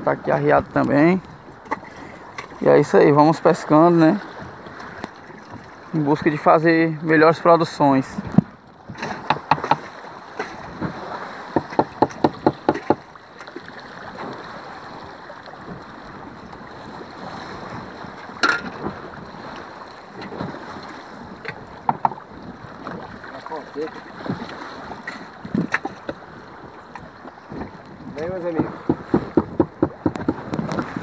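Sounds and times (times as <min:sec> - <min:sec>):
sea water washing around boat: 0:00.0 - 0:31.0
wind on microphone: 0:08.0 - 0:13.0, 0:14.0 - 0:31.0
sharp knocks: 0:08.4 - 0:09.8, 0:11.6 - 0:13.0, 0:21.8 - 0:22.2, 0:28.5 - 0:30.4.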